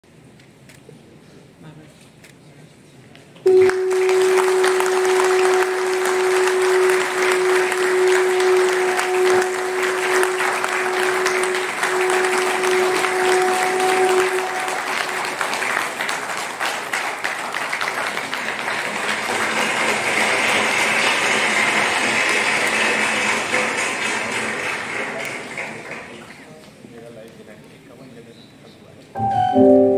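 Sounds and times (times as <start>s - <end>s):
steady held tone: 3.5s - 15.6s, 29.2s - 29.9s
audience applauding: 3.5s - 26.5s.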